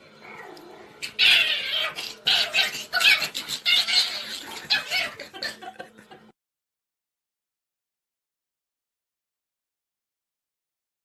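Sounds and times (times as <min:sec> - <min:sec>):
person giggling: 0:04.9 - 0:06.4.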